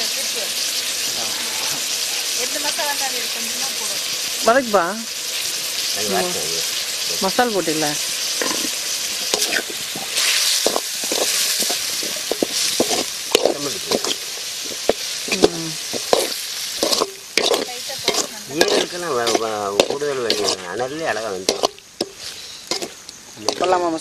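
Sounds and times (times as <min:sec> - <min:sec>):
liver sizzling in metal pan: 0:00.0 - 0:24.0
spoon scraping and knocking pan: 0:08.4 - 0:23.8.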